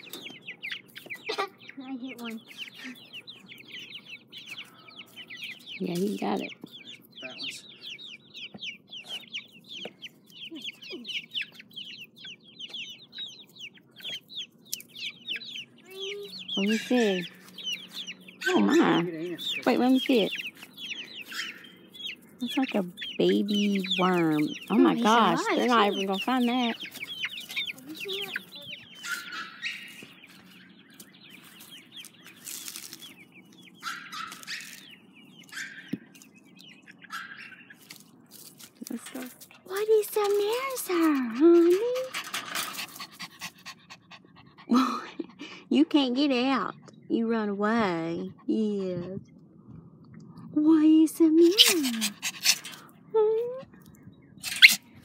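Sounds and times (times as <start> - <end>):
chicks peeping: 0.0 - 55.0
rustling: 29.8 - 33.6, 37.7 - 41.1.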